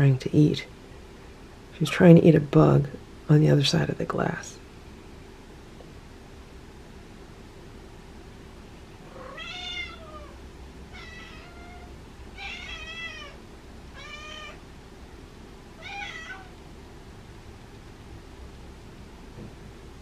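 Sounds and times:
cat meowing: 9.1s - 14.6s, 15.8s - 16.6s.

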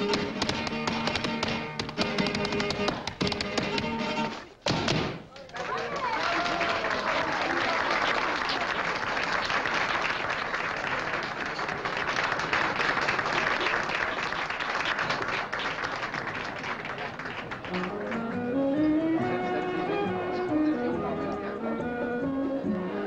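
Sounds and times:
audience applauding: 5.3s - 18.4s.

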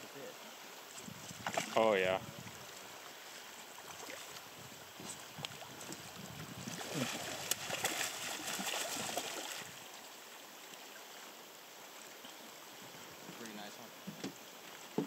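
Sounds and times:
river water running: 0.0s - 15.0s
fish splashing and thrashing: 3.8s - 9.8s.

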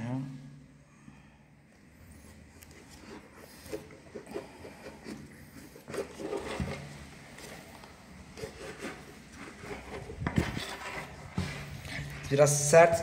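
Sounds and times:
plastic helmet handling: 2.3s - 12.4s.

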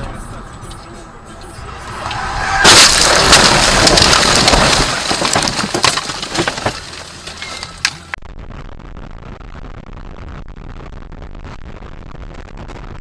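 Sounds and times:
loud car crash impact: 1.8s - 8.0s
windshield cracking: 1.9s - 8.2s.

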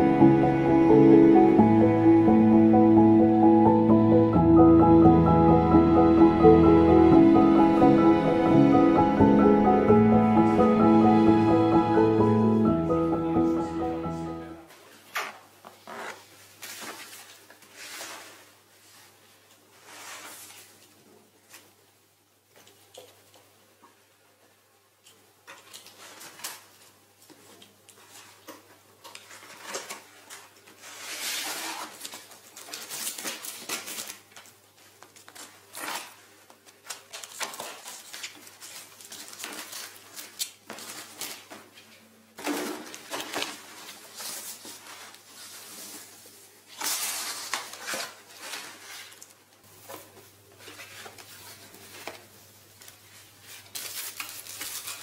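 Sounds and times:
plastic wrap rustling: 14.8s - 21.7s, 25.6s - 55.0s
cardboard flaps scraping: 29.3s - 34.2s
tape tearing: 30.8s - 34.5s, 35.1s - 41.5s, 53.6s - 55.0s.

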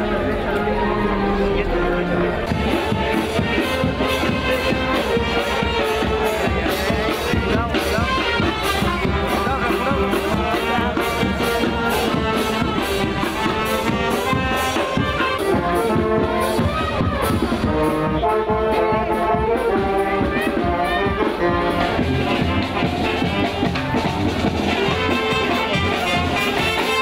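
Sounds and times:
brass instruments playing: 0.0s - 27.0s
steady drumbeat: 1.6s - 27.0s.

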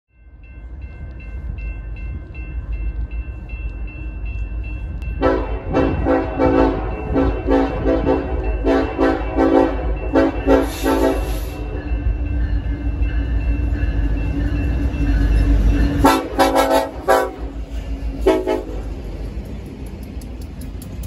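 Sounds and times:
diesel locomotives rumbling: 0.1s - 21.0s
train horn blasts: 5.2s - 11.6s, 16.0s - 17.6s, 18.2s - 18.9s.

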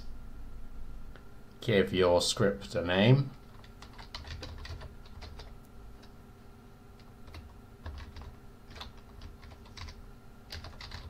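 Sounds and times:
keyboard typing clicks: 3.5s - 6.1s, 7.0s - 11.0s.

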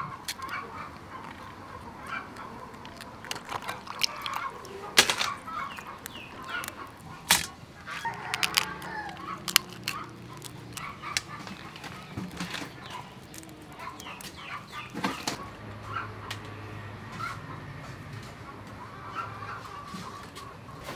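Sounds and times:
crab shells cracking: 0.0s - 15.6s
chickens clucking: 0.0s - 20.9s.

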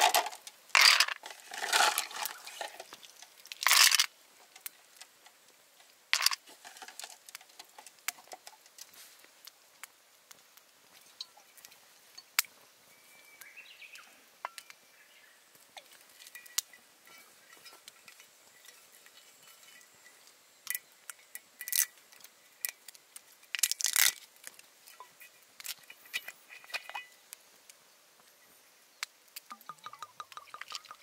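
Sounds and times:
ice cubes crackling: 0.0s - 4.1s, 23.5s - 24.5s.

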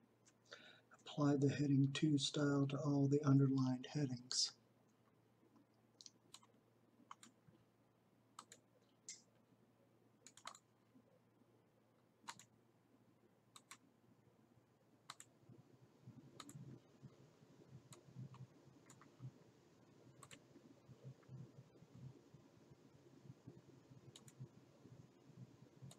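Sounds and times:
computer mouse clicks: 6.0s - 6.5s, 7.1s - 7.4s, 8.4s - 9.3s, 10.2s - 10.7s, 12.2s - 12.5s, 13.5s - 13.8s, 15.1s - 15.3s, 16.4s - 16.6s, 17.9s - 19.2s, 20.2s - 20.4s, 24.1s - 24.4s.

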